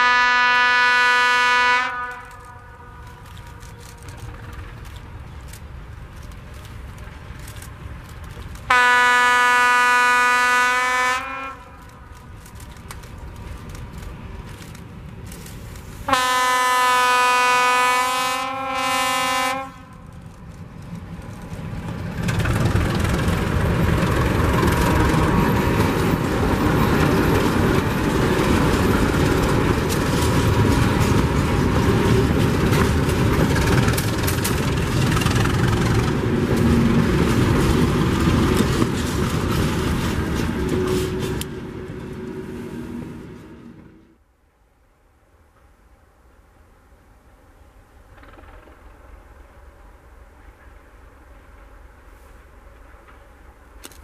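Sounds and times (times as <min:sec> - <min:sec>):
locomotive horn blasts: 0:00.0 - 0:04.2, 0:08.7 - 0:11.9, 0:16.1 - 0:20.0
freight wagons rolling on rails: 0:02.1 - 0:08.8, 0:11.6 - 0:16.1, 0:19.7 - 0:44.1.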